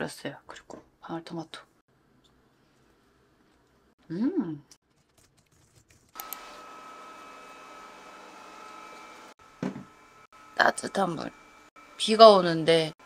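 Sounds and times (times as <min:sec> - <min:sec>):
person humming: 0:04.1 - 0:04.7.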